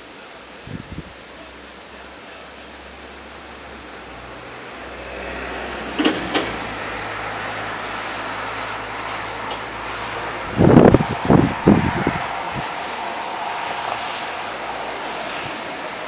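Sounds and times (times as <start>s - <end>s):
wind buffeting microphone: 0.6s - 1.2s, 5.2s - 16.0s
gusty wind rushing: 0.6s - 1.3s, 2.8s - 16.0s.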